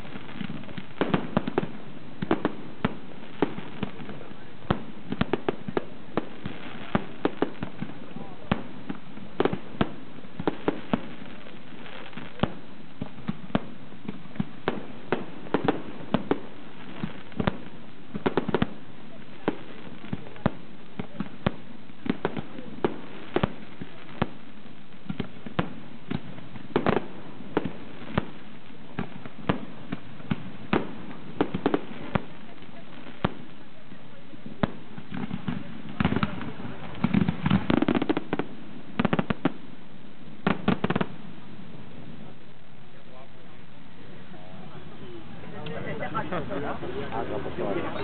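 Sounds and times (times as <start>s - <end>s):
fireworks bangs: 0.0s - 48.0s.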